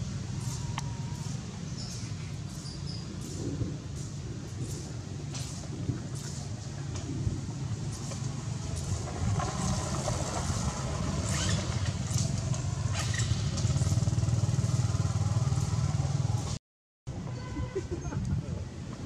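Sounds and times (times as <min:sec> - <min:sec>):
engine droning: 0:07.9 - 0:16.6.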